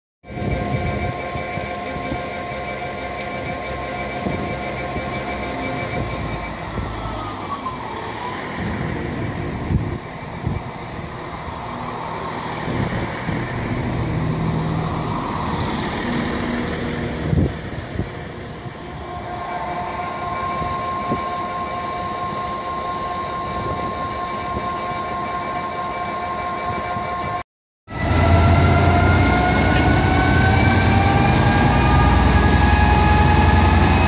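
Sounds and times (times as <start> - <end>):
diesel train engines rumbling: 0.3 - 34.0
steady engine whine: 0.3 - 34.0.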